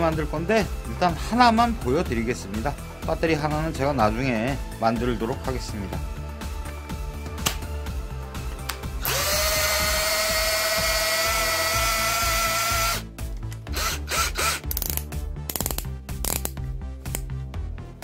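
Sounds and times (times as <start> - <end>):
cordless drill whining: 9.0 - 13.1, 13.7 - 14.9
drill chuck clicking: 9.0 - 17.2.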